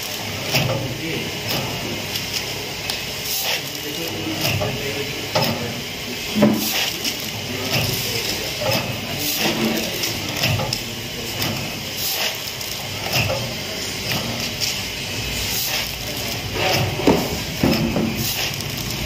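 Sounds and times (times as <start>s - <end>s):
packing machine clacking: 0.0s - 5.8s, 6.4s - 14.9s, 15.5s - 19.0s
steady mechanical noise: 0.0s - 19.0s.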